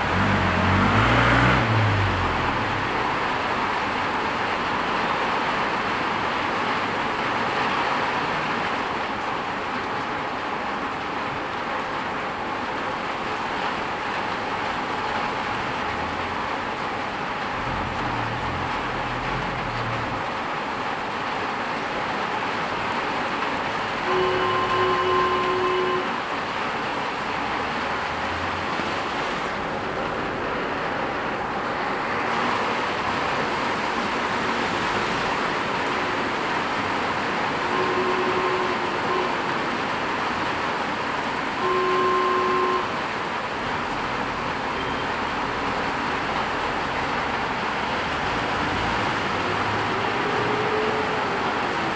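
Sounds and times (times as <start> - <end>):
low vehicle engine rumble: 0.0 - 5.6, 13.4 - 21.3
heavy rain on street: 0.0 - 51.9.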